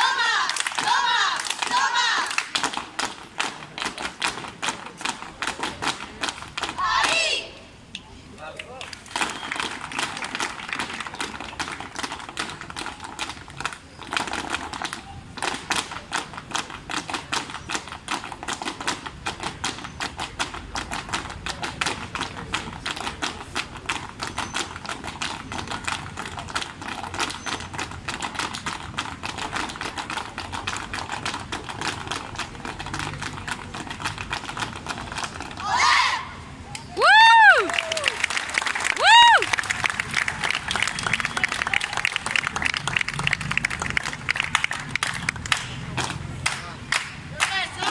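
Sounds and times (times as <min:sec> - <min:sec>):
heeled shoes tapping on pavement: 0:00.0 - 0:07.3, 0:09.0 - 0:35.6.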